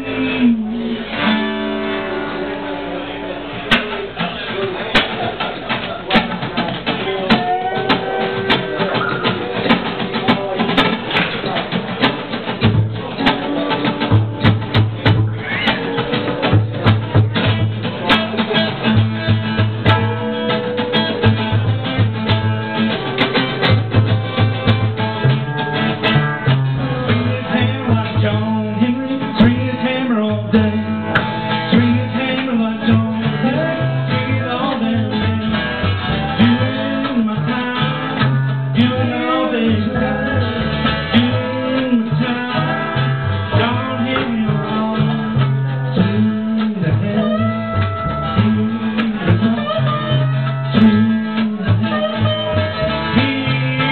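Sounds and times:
mandolin: 0:00.0 - 0:53.9
plucked upright bass: 0:00.0 - 0:53.9
strummed acoustic guitar: 0:00.0 - 0:53.9
person singing: 0:06.9 - 0:10.8, 0:26.4 - 0:53.9.

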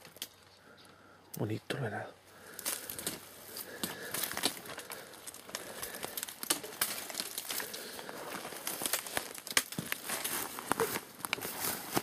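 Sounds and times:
footsteps crunching over dry brush: 0:02.4 - 0:12.0.

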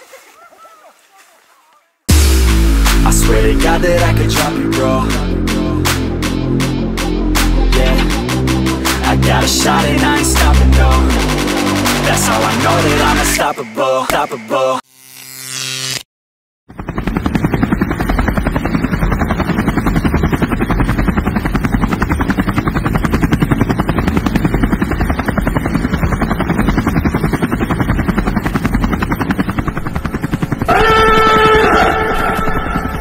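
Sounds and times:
horn-like chord: 0:02.1 - 0:13.0
helicopter rotor chopping: 0:02.1 - 0:14.4, 0:16.7 - 0:33.0.

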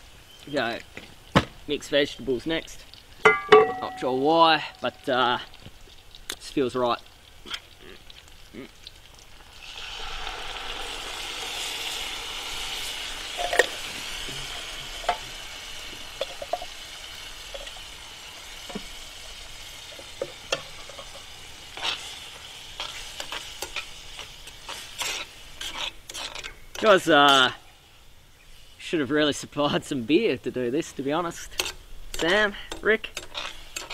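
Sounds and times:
vegetables sizzling in a pan: 0:02.6 - 0:28.8, 0:31.3 - 0:33.9
spoon scraping and knocking a pan: 0:20.0 - 0:22.1, 0:31.5 - 0:33.9.

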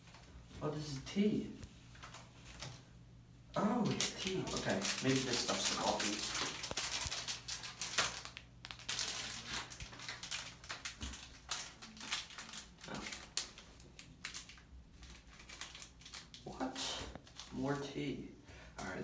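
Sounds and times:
packets torn and crinkled: 0:03.8 - 0:17.6.

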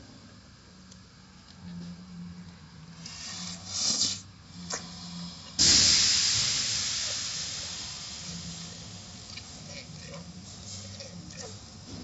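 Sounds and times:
car wash machinery hum: 0:00.0 - 0:12.0
hissing water spray: 0:03.0 - 0:04.3, 0:05.6 - 0:12.0.

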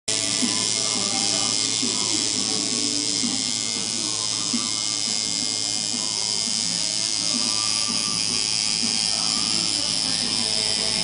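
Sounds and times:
faint background music: 0:00.1 - 0:11.0
tattoo machine buzzing: 0:00.1 - 0:11.0.

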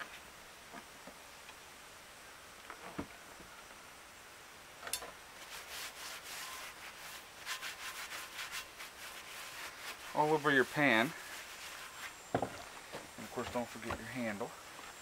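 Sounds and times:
paper towel wiping skillet: 0:05.4 - 0:12.2
soft thump: 0:12.3 - 0:14.0.

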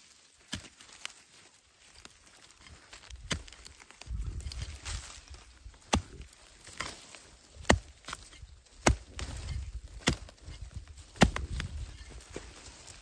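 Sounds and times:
hoe chopping into soil: 0:00.5 - 0:00.9, 0:03.2 - 0:03.6, 0:05.8 - 0:12.5.

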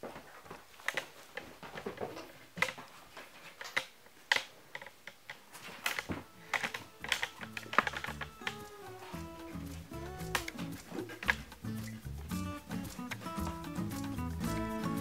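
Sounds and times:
monkey clambering on cardboard box: 0:04.8 - 0:14.2.

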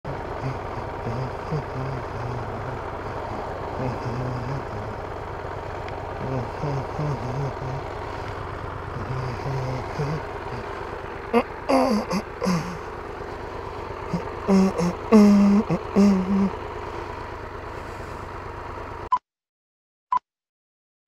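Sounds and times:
motorcycle engine idling: 0:00.1 - 0:19.1
man speaking: 0:00.4 - 0:05.0, 0:06.2 - 0:07.8, 0:09.0 - 0:10.6, 0:14.1 - 0:16.5.

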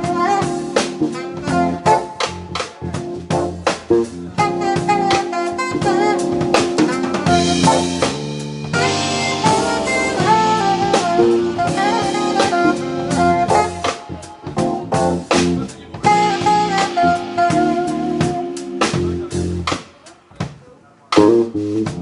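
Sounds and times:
electric bass guitar: 0:00.0 - 0:20.0, 0:21.2 - 0:22.0
saxophone: 0:00.0 - 0:20.3
drum kit: 0:00.0 - 0:22.0
keyboards: 0:00.0 - 0:22.0.

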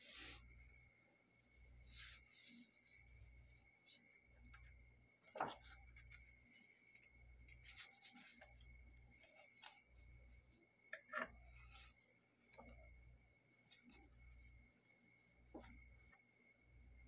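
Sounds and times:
faint high whine: 0:00.0 - 0:17.0
paper rustling and sliding: 0:07.6 - 0:09.8.

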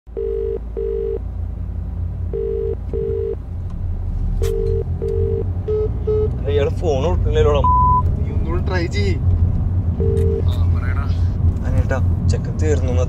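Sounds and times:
telephone ringback tone: 0:00.2 - 0:01.2, 0:02.4 - 0:03.4, 0:04.5 - 0:06.3, 0:10.0 - 0:10.4.

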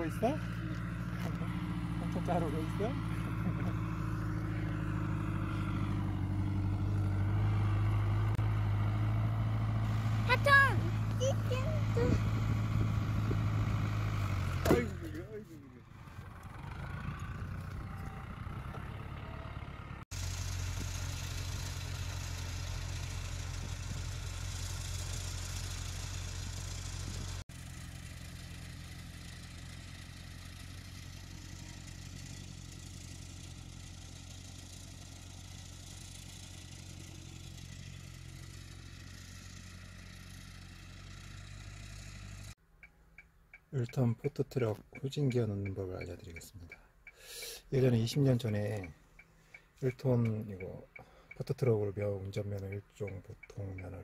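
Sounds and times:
tractor diesel engine running: 0:00.0 - 0:42.6.

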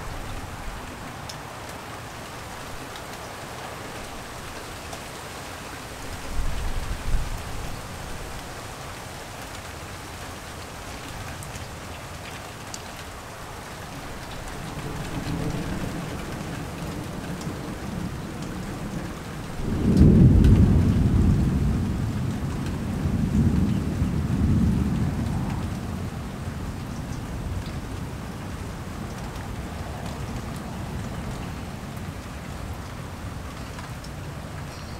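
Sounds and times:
light rain falling: 0:00.0 - 0:34.9
thunder rumbling: 0:14.7 - 0:26.8.

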